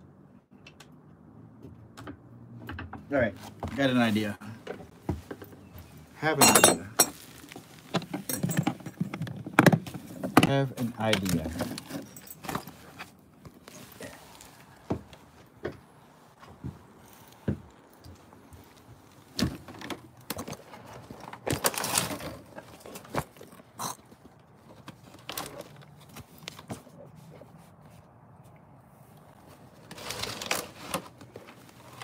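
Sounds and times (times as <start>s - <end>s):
handling knocks and clicks: 0.5s - 4.0s, 4.6s - 13.8s, 14.8s - 27.5s
clothing rustling against microphone: 3.1s - 19.8s.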